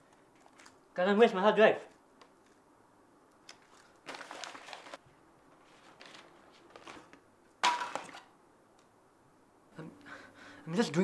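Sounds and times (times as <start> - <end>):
objects shuffled and knocked: 3.6 - 8.3
objects clattering: 5.7 - 8.3.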